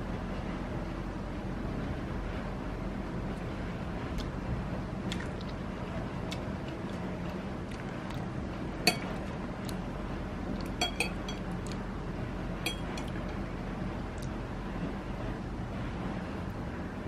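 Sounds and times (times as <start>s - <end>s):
faint room hum: 0.0s - 17.0s
cutlery clinking on ceramic bowl: 8.9s - 9.2s, 10.8s - 11.4s, 12.7s - 13.2s.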